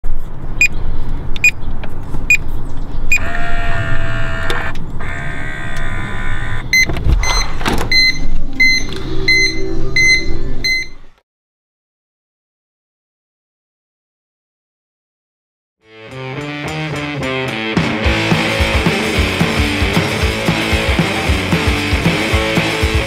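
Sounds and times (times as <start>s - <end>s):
lock motor whirring: 3.1s - 8.0s
evenly spaced beeps: 6.3s - 11.1s
keypad beeps: 6.7s - 11.1s.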